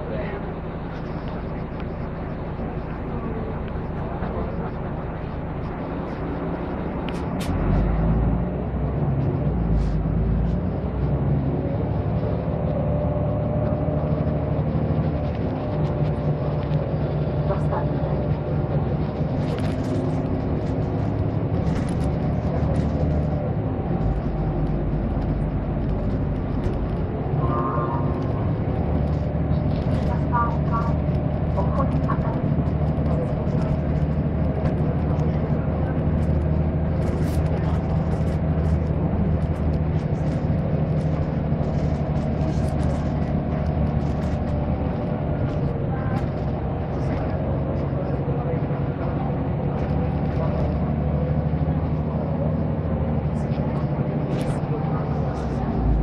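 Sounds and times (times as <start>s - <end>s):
bus engine running: 0.0s - 56.0s
road noise: 0.0s - 56.0s
light rattles and clicks: 15.1s - 51.6s.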